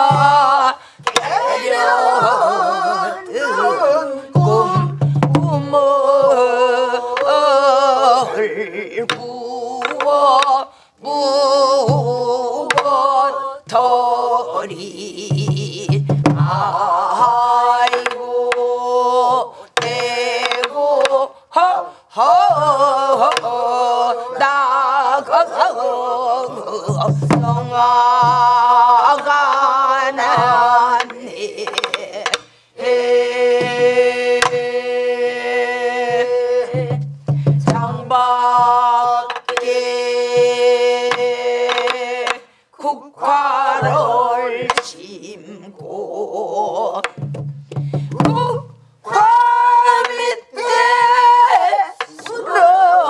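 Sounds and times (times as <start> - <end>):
group singing folk song: 0.0 - 53.0
barrel drum strokes: 36.0 - 42.4.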